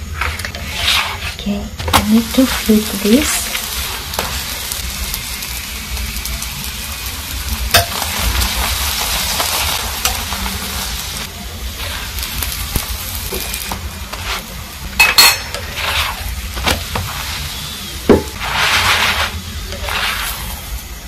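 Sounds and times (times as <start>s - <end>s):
flatbread sizzling in oil: 0.0s - 21.0s
utensil clinking against pan: 15.0s - 15.7s.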